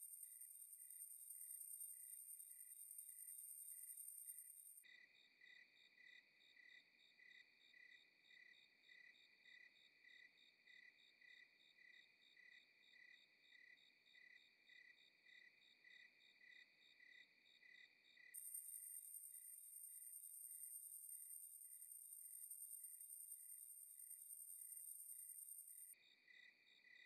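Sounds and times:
crickets chirping: 0.0s - 8.7s, 17.8s - 27.0s.

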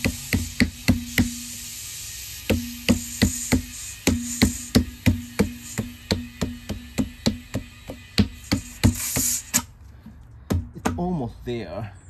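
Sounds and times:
hammer blows on wooden block: 0.0s - 1.5s, 2.5s - 9.6s.

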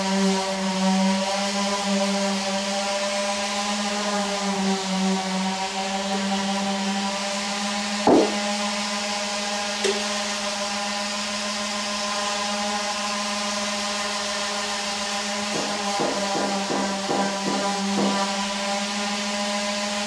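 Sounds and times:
sharp knock: 8.1s - 8.6s.

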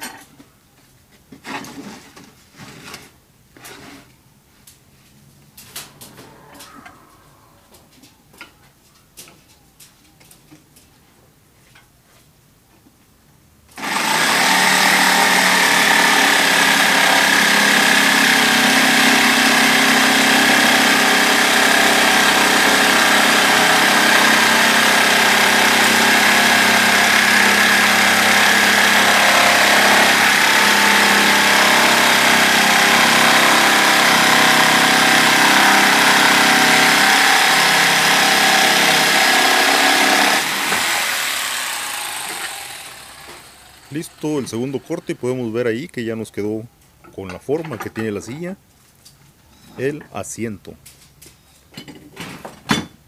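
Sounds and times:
electric jigsaw cutting plywood: 13.8s - 45.3s.

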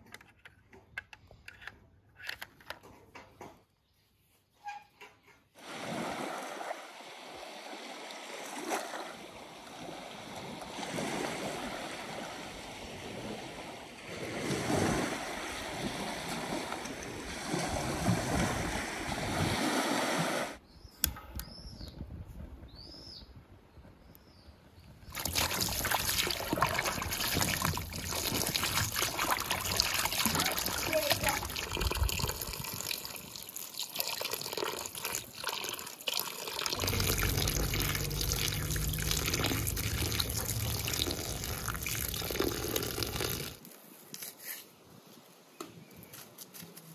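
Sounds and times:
small waves washing on shore: 5.6s - 20.6s, 25.1s - 35.3s, 36.6s - 43.6s
running water: 25.1s - 43.7s.

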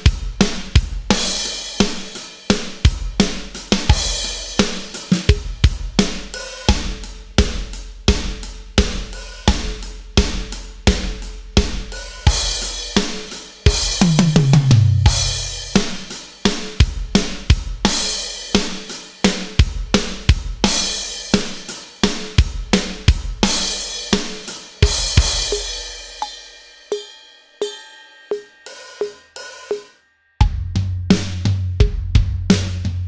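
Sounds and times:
crash cymbals: 0.0s - 7.2s, 23.4s - 30.0s
electronic drum kit rock groove: 0.0s - 33.0s.

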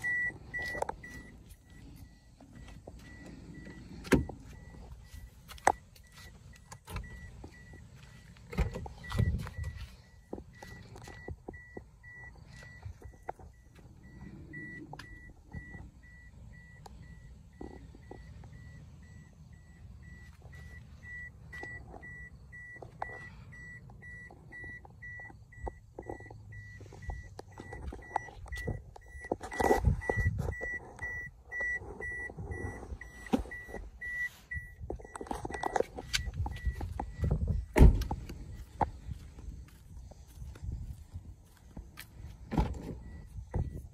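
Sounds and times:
car door warning chime beeping: 0.0s - 39.8s, 42.4s - 43.9s
car door shutting: 2.4s - 5.7s, 8.4s - 9.8s, 34.7s - 38.5s, 42.4s - 43.8s.

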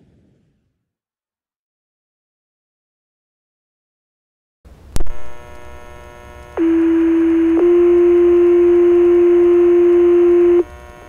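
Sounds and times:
radio transmitter click: 5.0s - 7.8s
radio hiss: 5.0s - 11.0s
two-tone paging tones: 6.6s - 10.6s.

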